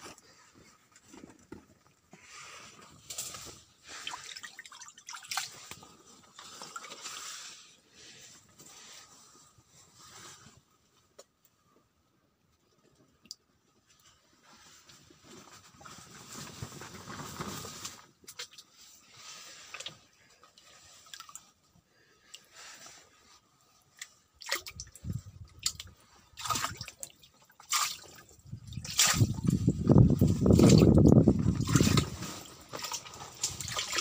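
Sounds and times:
water dripping into tub: 24.0s - 29.4s, 32.8s - 34.0s.

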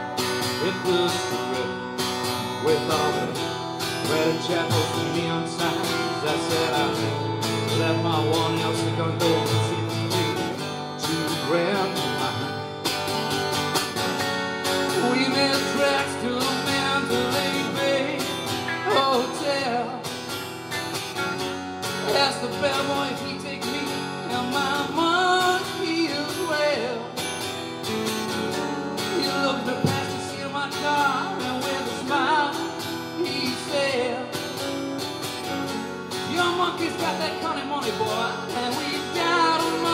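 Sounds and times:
acoustic guitar strumming: 0.0s - 39.9s
electric guitar lead with bends: 12.4s - 22.7s.

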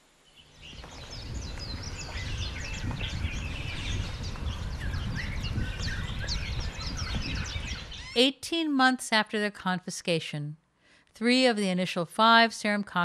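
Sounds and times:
small birds chirping: 0.2s - 8.3s.

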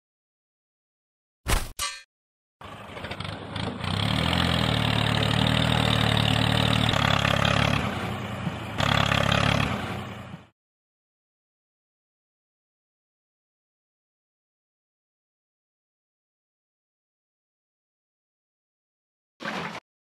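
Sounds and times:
tractor engine running: 2.6s - 10.5s.

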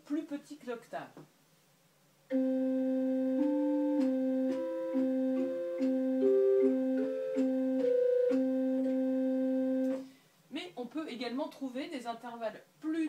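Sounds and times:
pipe organ playing intervals: 2.3s - 10.0s.

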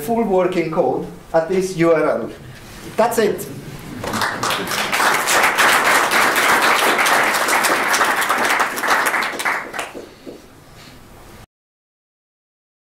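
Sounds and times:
audience applauding: 3.8s - 10.5s.

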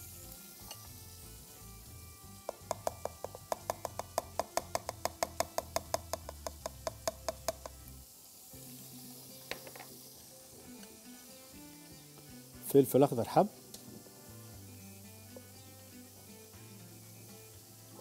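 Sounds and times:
jar tapping on bowl rim: 2.5s - 7.8s.

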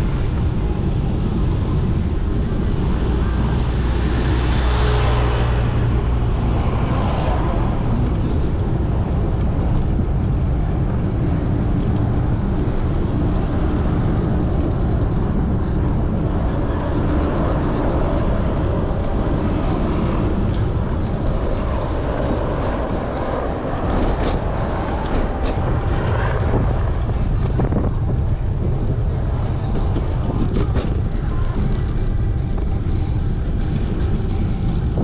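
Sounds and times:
wind rushing on microphone: 0.0s - 35.0s.

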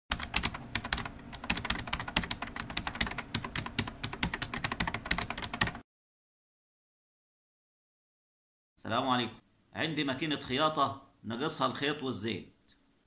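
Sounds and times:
computer keyboard typing: 0.1s - 5.8s.

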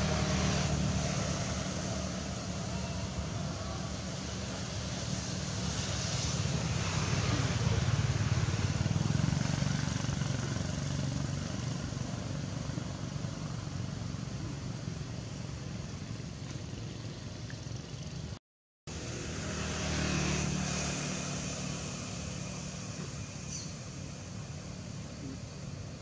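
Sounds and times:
hiss: 0.0s - 8.8s
low engine-like rumble: 9.9s - 18.4s.

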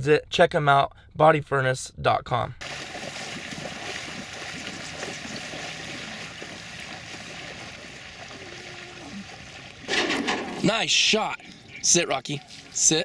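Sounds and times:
waders sloshing through water: 2.6s - 10.6s.

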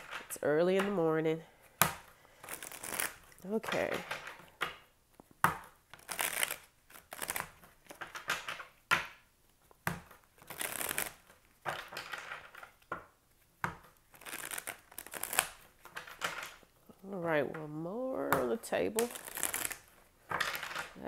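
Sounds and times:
cards shuffling by hand: 0.0s - 16.9s, 18.4s - 21.0s.

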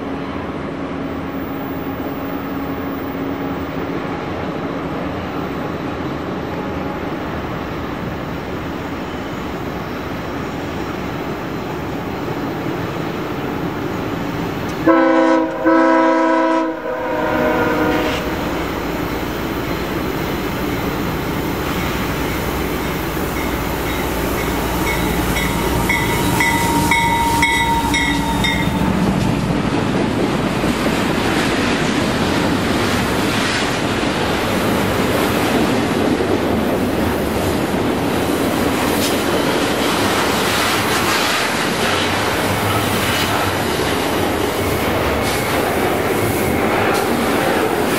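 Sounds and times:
train cars rumbling on rails: 0.0s - 47.9s
locomotive horn blasts: 14.8s - 18.5s, 24.6s - 29.0s
locomotives passing: 16.5s - 47.9s.

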